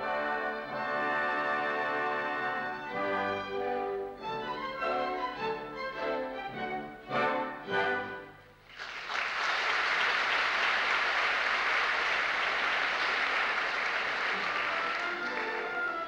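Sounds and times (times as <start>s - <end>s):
orchestra playing: 0.0s - 8.6s, 13.3s - 16.0s
audience applauding: 8.6s - 16.0s.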